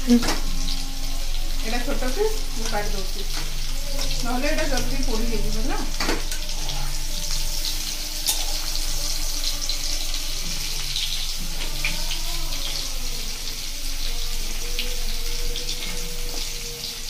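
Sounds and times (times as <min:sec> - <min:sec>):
vegetables sizzling in hot oil: 0:00.0 - 0:17.0.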